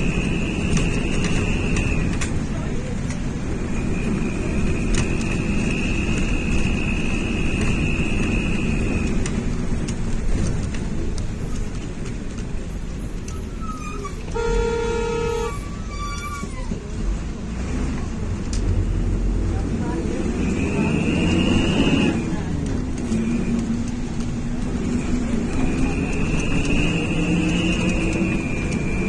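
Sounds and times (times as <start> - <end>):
road and engine noise: 0.0 - 29.0
car horn: 14.3 - 15.7.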